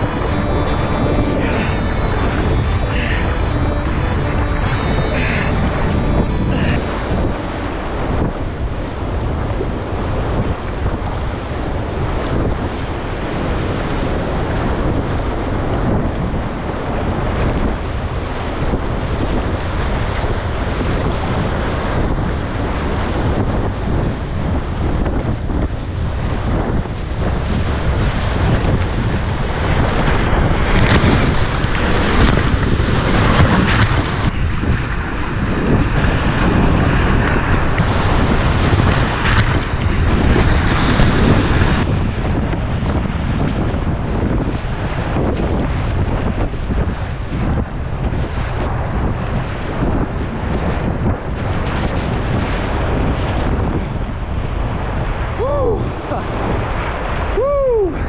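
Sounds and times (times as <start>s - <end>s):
rushing whitewater: 0.0s - 9.4s, 27.5s - 41.8s
waves splashing against a boat: 0.0s - 57.4s
wind buffeting the microphone: 0.0s - 58.0s.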